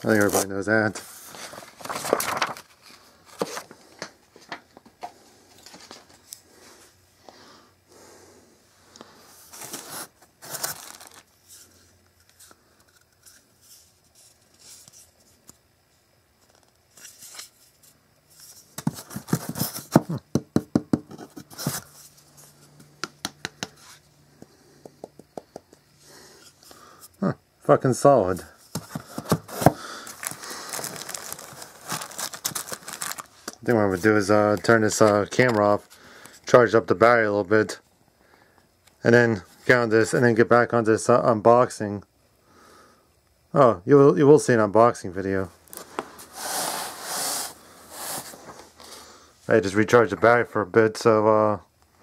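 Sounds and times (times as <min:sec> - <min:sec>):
cardboard and foam packaging rustling: 0:00.0 - 0:06.3, 0:09.4 - 0:11.8, 0:18.4 - 0:20.2, 0:21.0 - 0:22.7, 0:28.6 - 0:36.0, 0:45.6 - 0:48.8.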